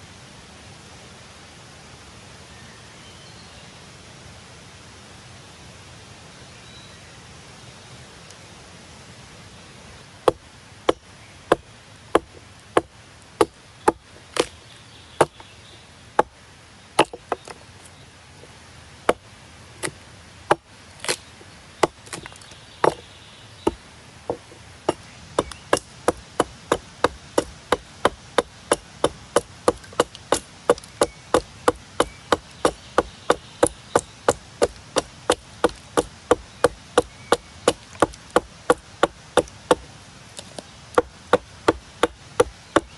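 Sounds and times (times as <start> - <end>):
hatchet chopping wood: 10.2 - 14.6, 15.2 - 15.4, 17.0 - 17.6, 19.8 - 21.2, 21.8 - 23.0, 23.7 - 42.9.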